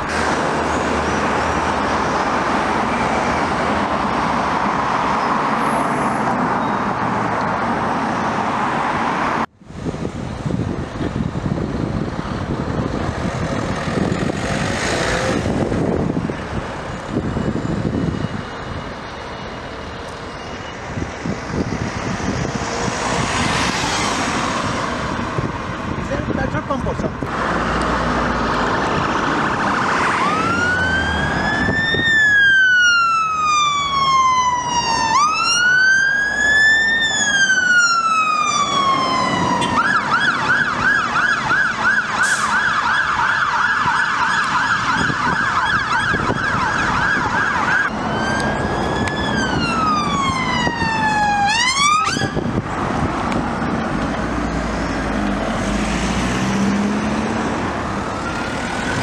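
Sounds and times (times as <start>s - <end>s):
traffic noise: 0.0s - 59.0s
vehicle engines: 0.0s - 59.0s
electronic sirens wailing and yelping: 28.7s - 52.5s.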